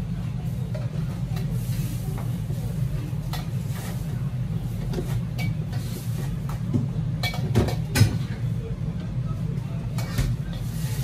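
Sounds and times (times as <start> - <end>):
kitchen equipment drone: 0.0 - 11.0
metal cookware clinking: 7.2 - 8.1.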